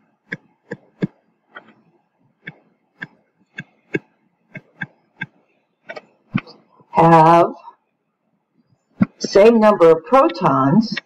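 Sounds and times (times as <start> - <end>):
stylus tapping on touchscreen: 0.3 - 6.6.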